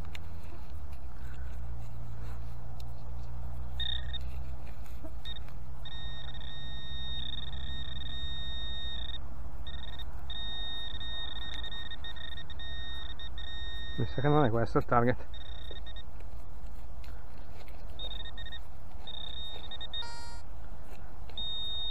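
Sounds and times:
metal detector high-pitched beep: 3.8s - 4.3s, 5.1s - 16.1s, 18.0s - 20.5s, 21.3s - 21.9s.

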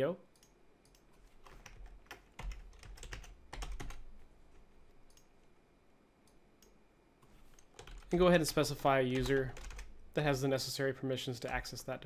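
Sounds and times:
keyboard typing: 0.4s - 4.1s, 7.4s - 10.0s.

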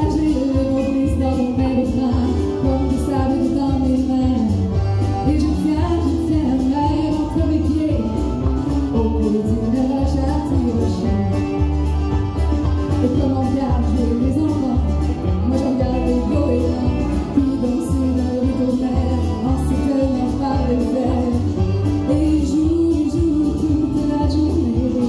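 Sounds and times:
woman singing into a microphone: 0.0s - 11.8s, 12.8s - 25.0s
amplified country accompaniment: 0.0s - 25.0s.

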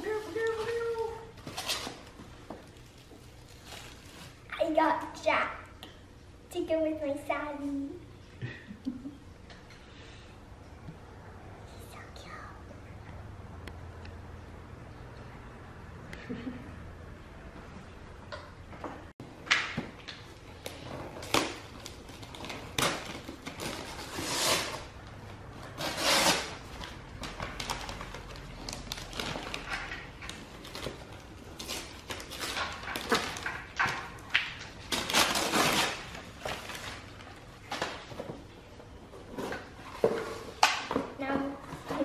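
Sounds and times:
wrapping paper tearing and crumpling: 0.0s - 4.5s, 20.6s - 25.0s, 25.7s - 33.9s, 34.8s - 38.0s.

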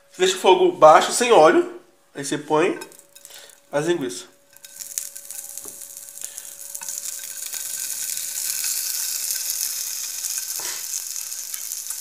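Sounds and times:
sausage sizzling in frying pan: 2.9s - 12.0s.

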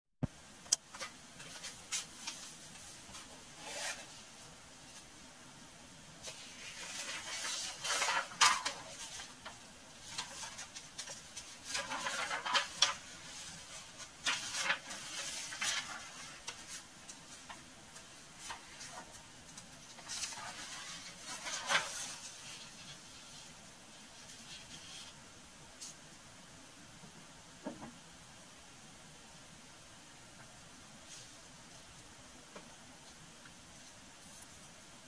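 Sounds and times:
rustling of objects: 0.8s - 5.3s, 6.1s - 26.1s.

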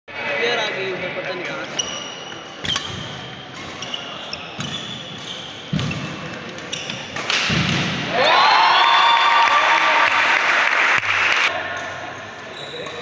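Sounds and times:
shoes squeaking on wooden court: 1.5s - 7.4s, 12.2s - 13.0s
crowd cheering: 8.1s - 11.6s
crowd applause: 8.2s - 11.5s.

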